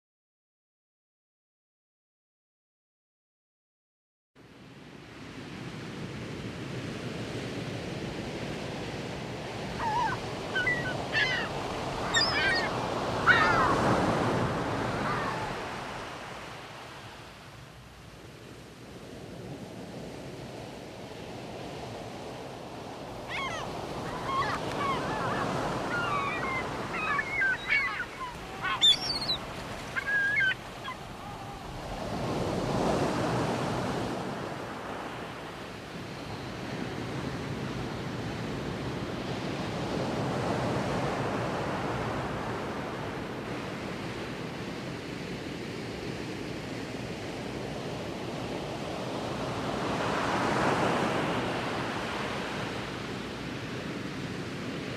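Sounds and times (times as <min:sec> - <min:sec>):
ocean surf: 0:04.6 - 0:54.9
bird calls: 0:09.8 - 0:14.0, 0:23.2 - 0:31.9.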